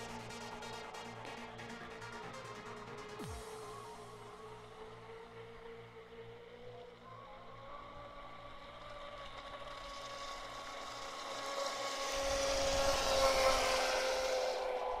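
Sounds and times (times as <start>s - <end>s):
electric motor whine: 3.2s - 15.0s.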